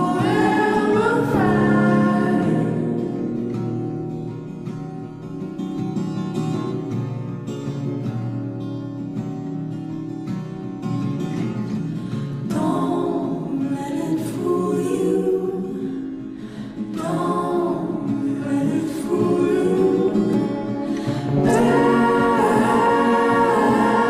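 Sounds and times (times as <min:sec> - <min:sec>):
folk song with choir-like voices: 0:00.0 - 0:04.1, 0:12.0 - 0:24.0.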